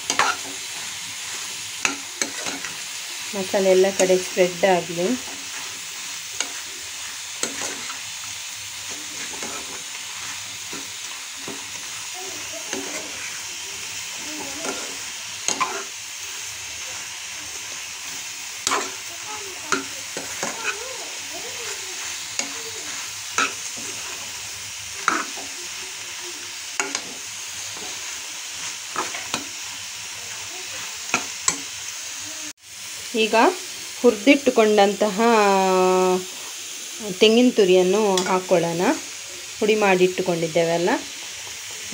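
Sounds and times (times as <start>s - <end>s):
metal spoon scraping a pan: 0.0s - 31.8s
vegetables sizzling in a pan: 0.0s - 41.9s.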